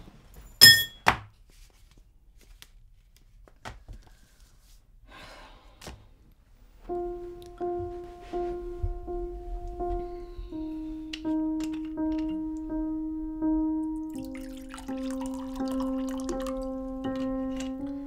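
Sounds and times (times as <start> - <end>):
sharp ringing clink: 0.6 - 1.0
low plucked note music: 6.9 - 18.0.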